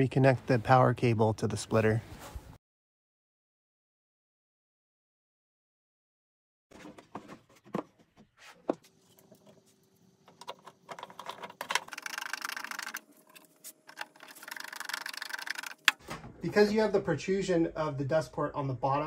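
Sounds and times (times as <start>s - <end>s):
plastic parts clicking and knocking: 6.8s - 16.0s.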